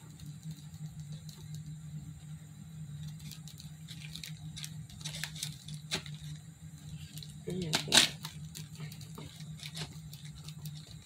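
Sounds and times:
steady low hum: 0.0s - 11.0s
foam pieces tapping and rustling: 3.0s - 6.4s, 7.0s - 11.0s.

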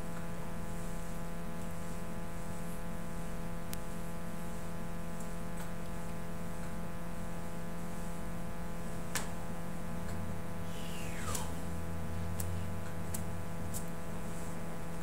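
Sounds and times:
low electrical hum and hiss: 0.0s - 15.0s.

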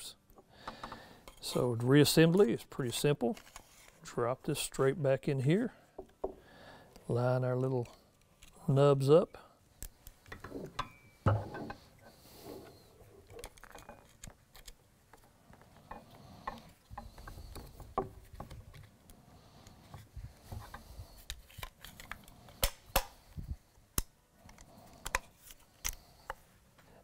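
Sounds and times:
gun parts clicking and clacking: 13.2s - 15.2s.

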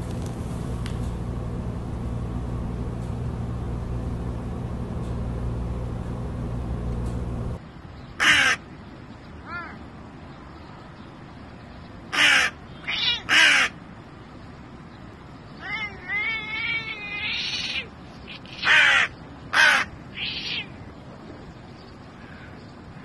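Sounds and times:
low hum: 0.0s - 8.0s
crow cawing: 8.2s - 8.7s, 12.1s - 13.8s, 18.4s - 20.7s, 22.2s - 23.0s.

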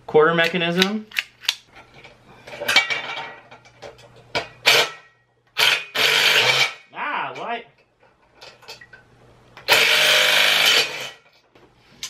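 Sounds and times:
handheld power driver running: 5.6s - 6.8s, 9.7s - 11.2s.

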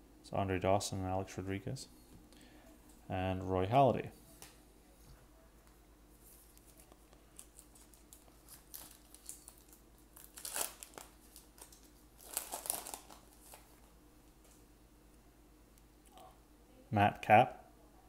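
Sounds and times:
foil wrapper crinkling and tearing: 6.5s - 13.9s.

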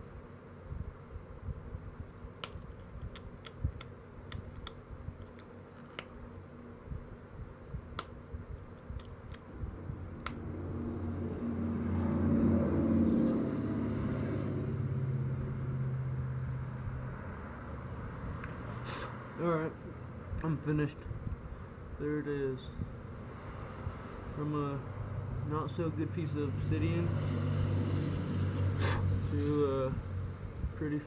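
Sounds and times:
passing engine drone: 10.4s - 19.6s, 23.2s - 30.4s.

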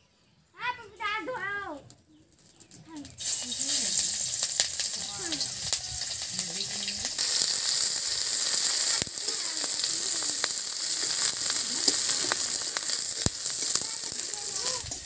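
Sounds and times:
onion sizzling in hot oil: 2.4s - 15.0s
spatula scraping a wok: 3.2s - 15.0s.

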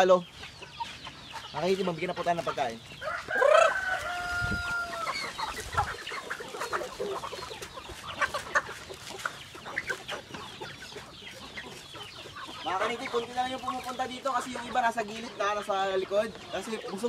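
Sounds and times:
chickens clucking: 0.0s - 17.0s
long held chicken call: 3.0s - 8.4s.

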